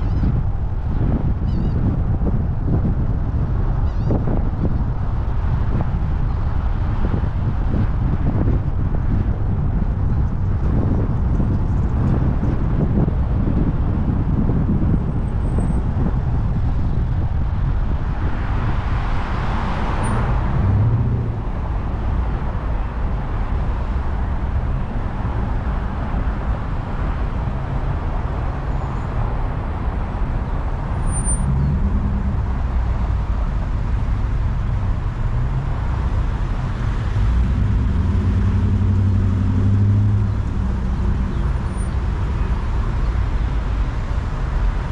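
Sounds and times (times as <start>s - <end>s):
car engine and road rumble: 0.0s - 44.9s
vehicle passing by: 17.9s - 44.9s.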